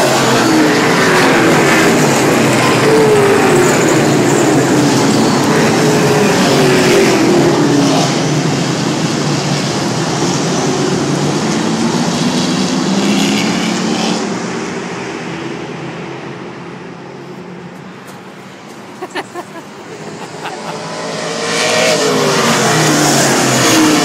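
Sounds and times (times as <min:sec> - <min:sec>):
stock car engines racing past: 0:19.6 - 0:24.0.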